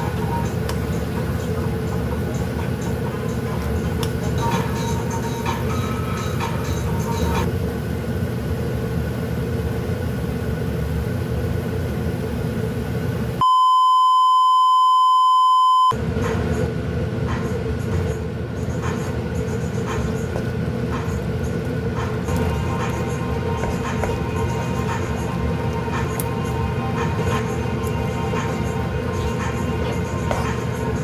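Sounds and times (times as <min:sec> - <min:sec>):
test-tone beep: 0:13.4 - 0:16.0.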